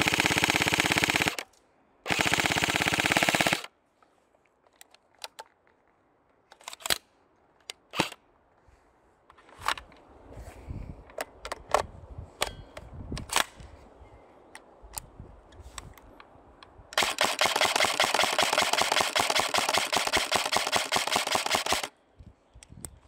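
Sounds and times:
airsoft gun firing: 17.0s - 21.9s.

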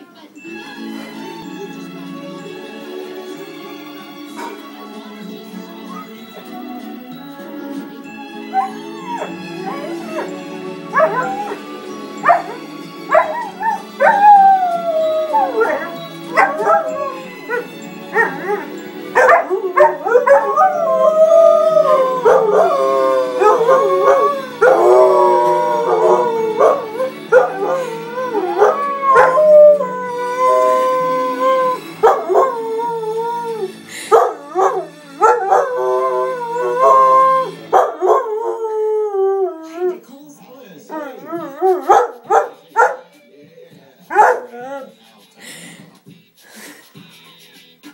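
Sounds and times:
low backing music: 0.0s - 47.9s
dog howling: 8.5s - 40.0s, 40.9s - 43.0s.

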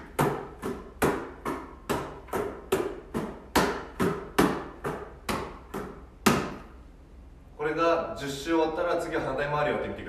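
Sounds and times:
basketball slapping into palms: 0.0s - 6.8s.

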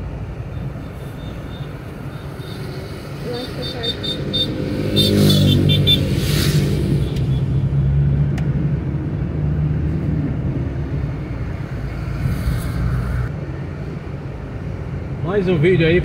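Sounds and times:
engine and tyre rumble: 0.0s - 16.0s
tyres hissing on wet road: 12.0s - 13.3s.

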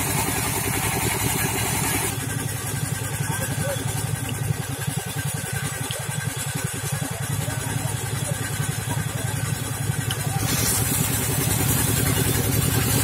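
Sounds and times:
small engine running: 0.0s - 13.0s
water gushing and splashing: 9.8s - 13.0s.

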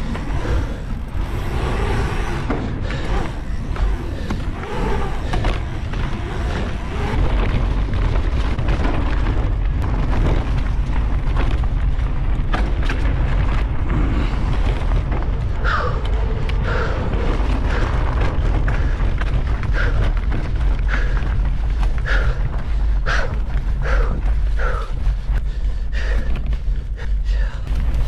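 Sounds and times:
bike tyre noise: 0.0s - 28.0s
wind rumbling on microphone: 0.0s - 28.0s.

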